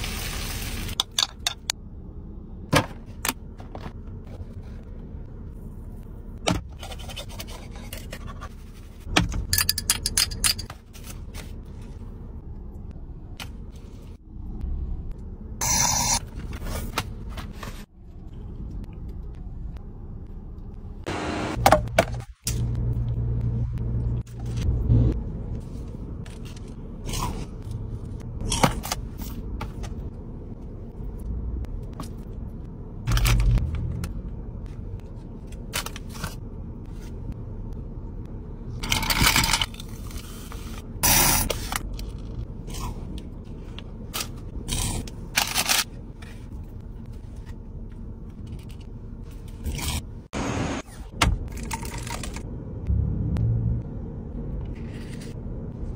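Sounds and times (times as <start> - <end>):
low steady hum: 0.0 - 55.9.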